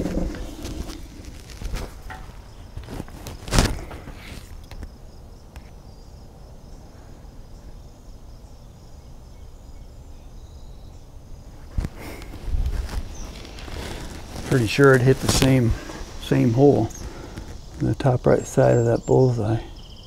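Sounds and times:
sharp crack: 0.0s - 4.9s, 11.7s - 17.9s
insects droning: 0.0s - 20.0s.

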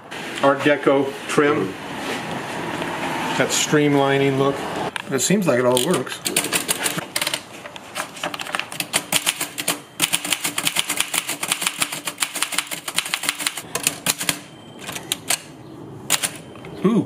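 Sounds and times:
typewriter keystrokes: 5.8s - 15.5s, 16.1s - 16.4s.

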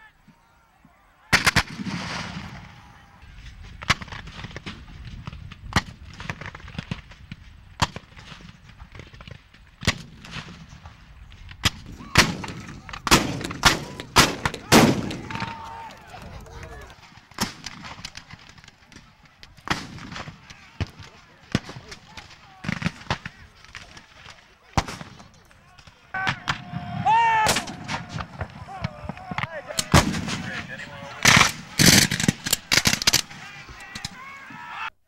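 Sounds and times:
musket shots: 1.3s - 2.8s, 11.6s - 15.5s, 17.2s - 26.8s, 27.4s - 34.2s.

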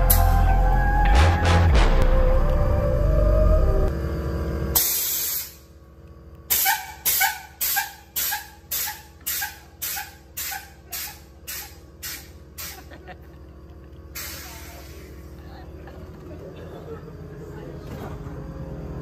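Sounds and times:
music with heavy bass: 0.0s - 3.9s
burst of hiss: 4.8s - 5.6s, 6.5s - 12.9s, 14.2s - 15.1s.

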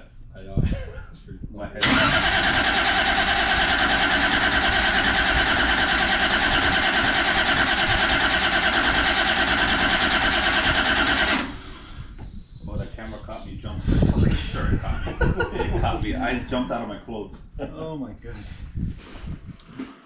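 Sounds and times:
engine starter cranking: 1.8s - 11.8s.

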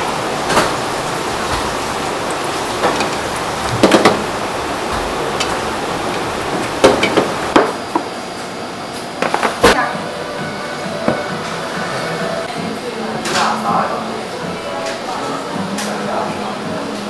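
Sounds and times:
water boiling: 0.0s - 9.7s.

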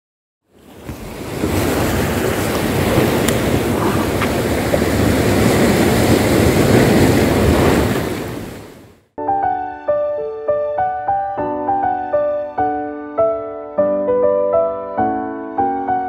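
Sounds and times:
waves breaking on rocky shore: 0.6s - 9.0s.

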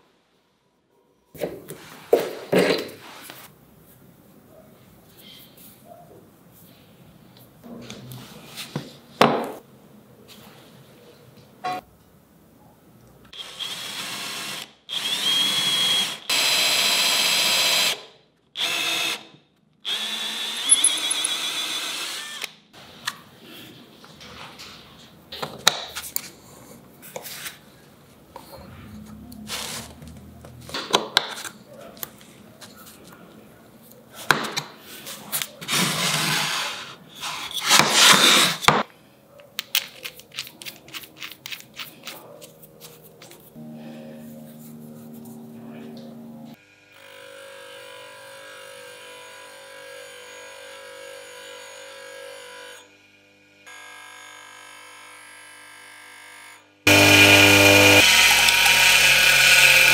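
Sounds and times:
cordless drill boring into wood: 13.4s - 18.0s, 18.6s - 22.6s, 56.9s - 59.9s.

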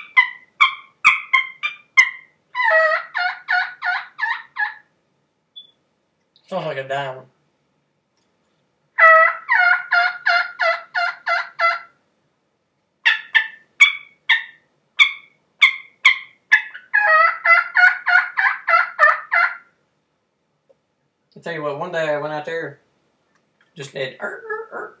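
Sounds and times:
turkey call yelps: 0.0s - 4.9s, 9.0s - 12.0s, 13.0s - 19.8s, 24.2s - 25.0s.

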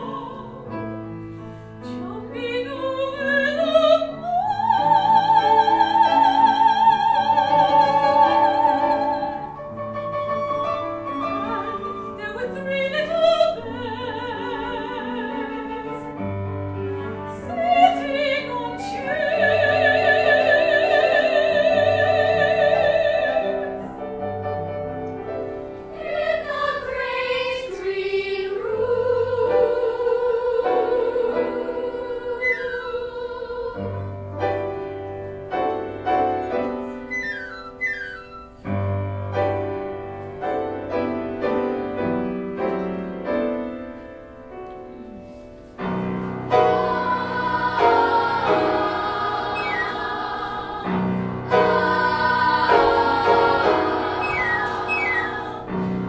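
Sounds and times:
soprano singing with vibrato: 0.0s - 0.7s, 2.0s - 9.6s, 10.5s - 16.2s, 17.0s - 23.9s, 26.0s - 34.1s, 46.6s - 55.8s
piano accompaniment: 0.0s - 56.0s
children's choir singing: 2.6s - 9.6s, 17.1s - 24.2s, 25.9s - 34.1s, 46.5s - 56.0s.

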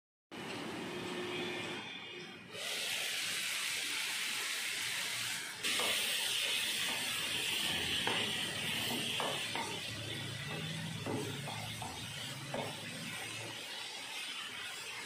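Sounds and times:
vegetables sizzling in a pan: 2.5s - 15.0s
spatula scraping a pan: 5.2s - 15.0s.

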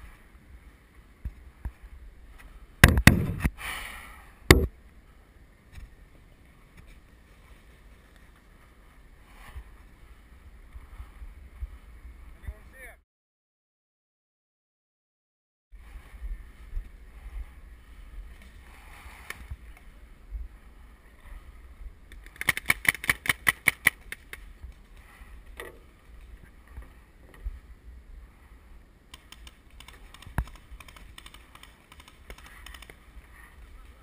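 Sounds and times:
paintball marker firing: 2.8s - 3.5s
wind rumble on microphone: 15.7s - 22.3s.

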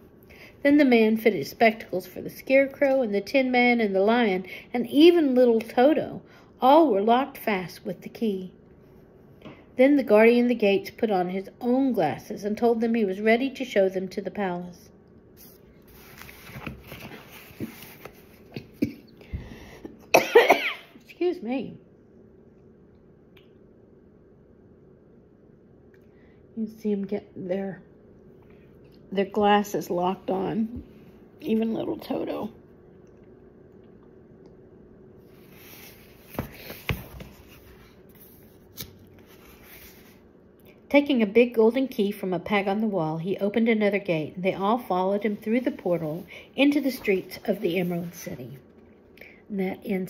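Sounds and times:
woman speaking: 0.6s - 8.6s, 9.8s - 14.9s, 21.0s - 21.9s, 26.6s - 28.0s, 29.1s - 32.6s, 40.9s - 48.6s, 49.5s - 50.0s
book handling and page rustling: 15.4s - 18.7s, 35.3s - 40.2s
woman clearing throat: 20.1s - 21.0s.

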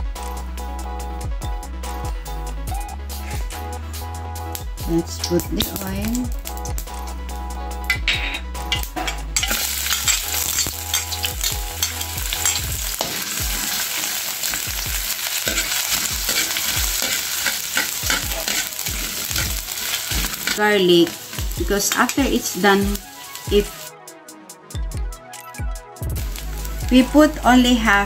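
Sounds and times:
metal spatula scraping a wok: 8.1s - 22.6s
ginger sizzling in hot oil: 8.7s - 23.9s, 26.2s - 28.0s.

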